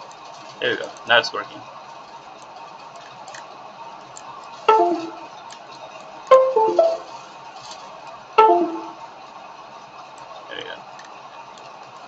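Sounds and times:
computer device connect chime: 4.7 - 5.3, 6.3 - 7.1, 8.4 - 9.0.

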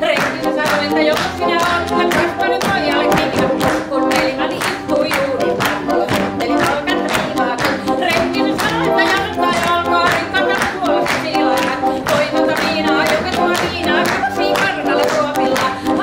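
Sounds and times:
group of voices singing: 0.0 - 16.0
sharp rhythmic claps: 0.0 - 16.0.

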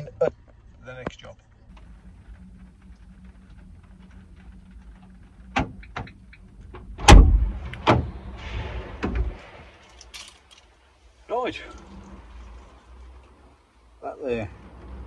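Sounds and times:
rain hiss: 0.0 - 15.0
van door clunk: 5.5 - 10.5.

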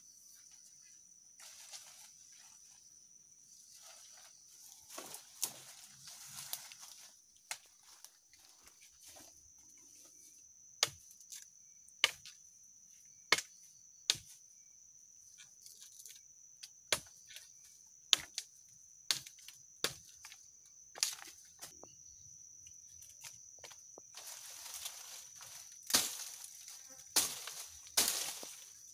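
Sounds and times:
high-pitched insect drone: 0.0 - 28.9
machete chopping wood: 12.0 - 12.3, 13.3 - 14.4, 16.9 - 17.2, 18.1 - 18.5, 19.1 - 20.1, 25.9 - 26.4, 27.2 - 28.5.

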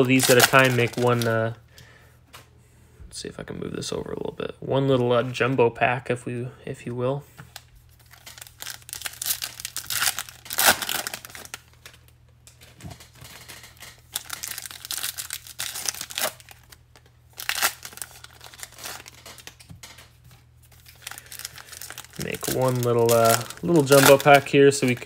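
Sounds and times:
foil wrapper tearing and crinkling: 0.0 - 1.3, 8.0 - 12.0, 12.6 - 20.1, 20.7 - 25.0.

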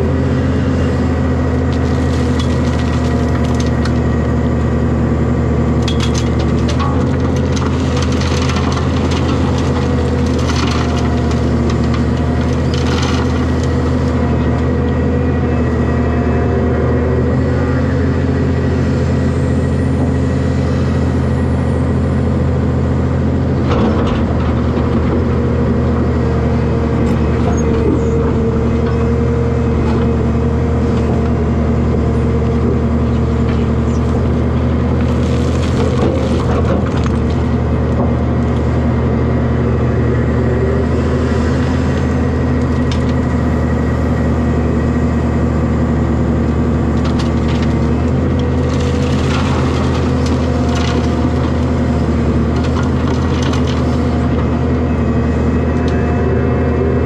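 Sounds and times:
excavator diesel engine running: 0.0 - 57.0
dirt and rocks clattering into trailer: 5.8 - 13.8, 46.9 - 54.3.

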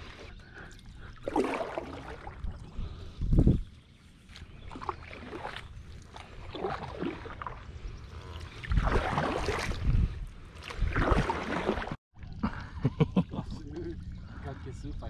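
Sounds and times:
paddle strokes swishing through water: 0.0 - 3.0, 4.0 - 12.0.

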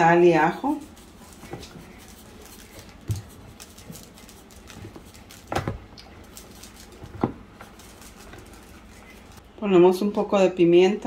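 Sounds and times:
shaker knocking and tapping: 0.8 - 5.8.

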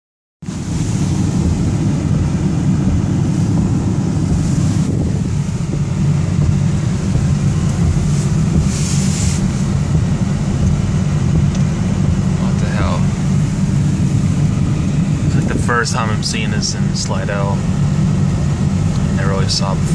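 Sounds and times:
heavy rain on a car: 0.4 - 19.9.

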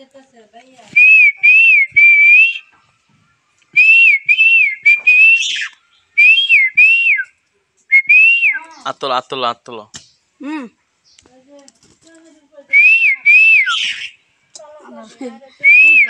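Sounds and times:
loud whistled notes: 1.0 - 2.7, 3.8 - 7.3, 7.9 - 8.6, 12.8 - 14.2, 15.7 - 16.0.

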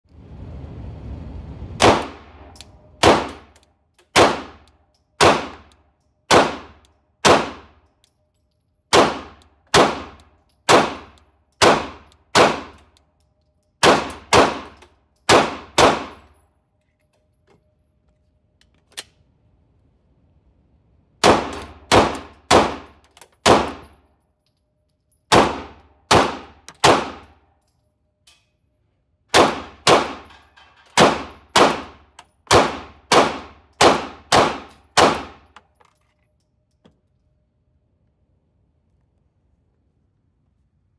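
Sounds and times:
pistol gunshots indoors: 1.8 - 7.9, 8.8 - 16.4, 21.2 - 24.0, 25.3 - 27.6, 29.3 - 35.6.

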